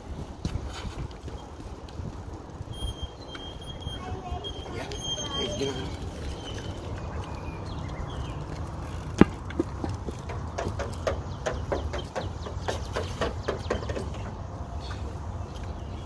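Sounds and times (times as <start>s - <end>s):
bicycle knocking and rattling: 0.0s - 16.0s
bicycle riding on concrete: 0.0s - 16.0s.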